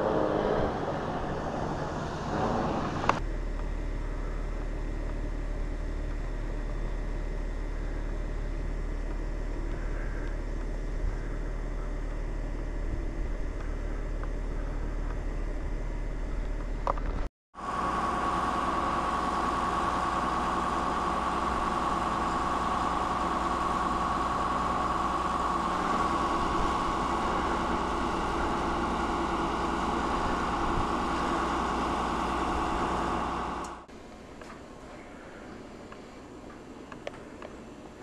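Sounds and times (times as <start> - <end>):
low rumble: 0.0 - 17.3
drill rig mechanical drone: 0.0 - 38.0
steady mechanical whine: 0.0 - 38.0.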